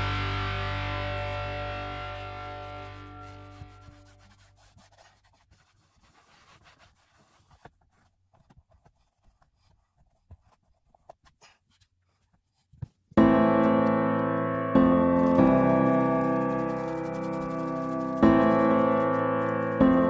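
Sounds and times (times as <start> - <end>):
guitar music: 0.0 - 4.2, 13.2 - 20.0
towel rubbing on console: 2.5 - 13.0, 15.2 - 20.0.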